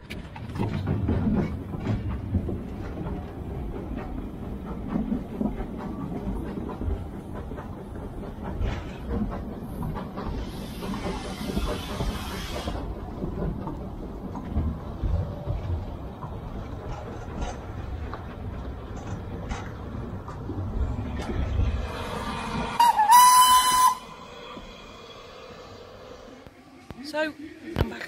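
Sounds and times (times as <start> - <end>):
wheels clicking over rails: 0.0 - 24.7
train rumbling past: 0.0 - 28.0
loud hiss of steam: 10.3 - 12.9.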